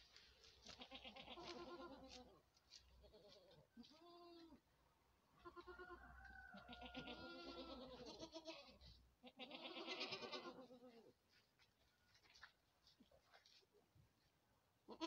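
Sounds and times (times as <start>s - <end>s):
goat bleating: 0.6s - 2.4s, 3.0s - 4.6s, 5.4s - 11.2s.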